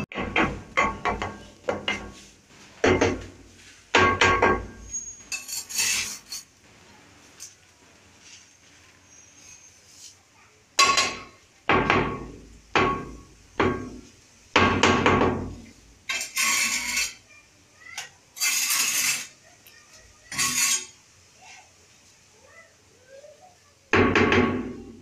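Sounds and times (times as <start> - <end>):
rasping scrapes across tiles: 4.9 - 6.5, 16.2 - 17.2, 18.4 - 19.4, 20.3 - 21.0.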